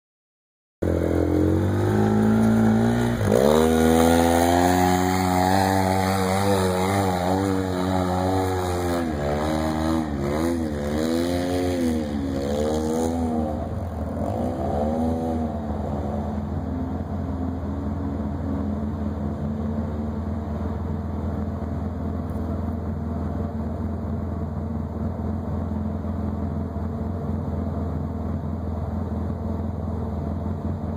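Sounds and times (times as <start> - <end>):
off-road vehicle engine revving: 0.8 - 19.9.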